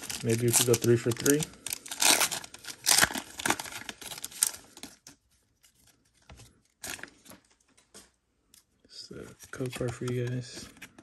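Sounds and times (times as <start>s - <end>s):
foil wrapper crinkling and tearing: 0.0s - 7.3s
cards rustling: 0.0s - 7.6s, 9.1s - 11.0s.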